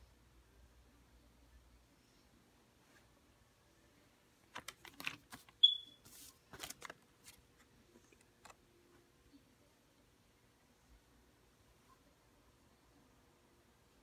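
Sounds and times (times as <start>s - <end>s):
paper banknotes rustling: 4.5s - 8.6s.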